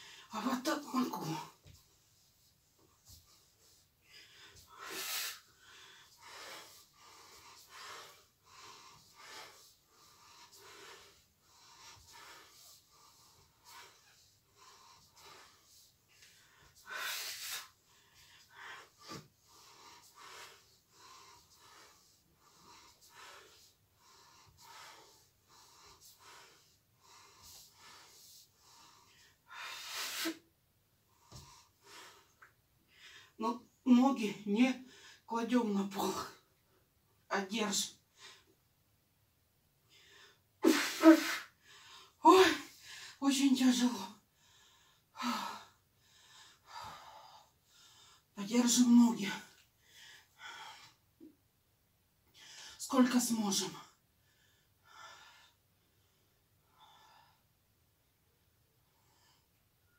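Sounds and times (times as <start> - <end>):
woman breathing heavily: 0.0 - 0.4, 2.8 - 33.4, 39.9 - 43.2, 44.1 - 48.3, 49.4 - 51.3, 53.9 - 57.6.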